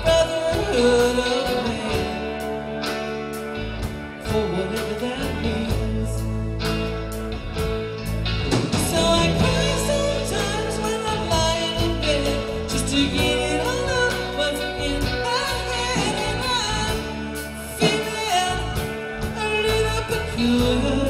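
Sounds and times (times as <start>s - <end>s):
person singing: 0.0s - 7.2s, 8.5s - 21.0s
band playing drums and bass: 0.0s - 21.0s.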